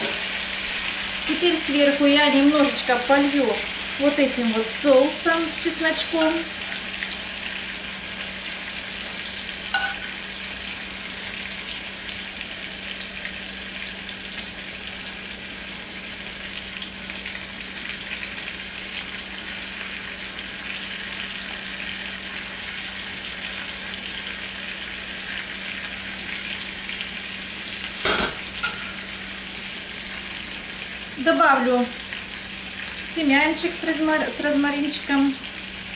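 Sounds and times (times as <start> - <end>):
cookware clank: 0.0 - 0.2, 9.7 - 10.1, 28.0 - 29.0
chicken sizzling in skillet: 0.0 - 35.9
metal spoon clink: 9.7 - 10.1.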